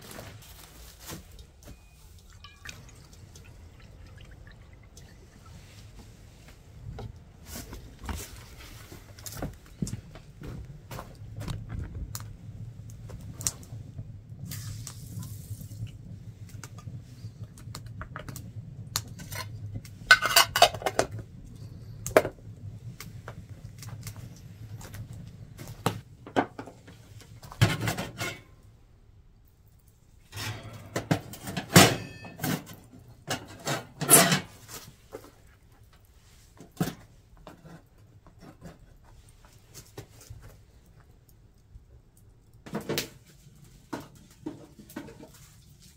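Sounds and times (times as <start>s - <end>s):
low rumble: 2.9s - 26.2s.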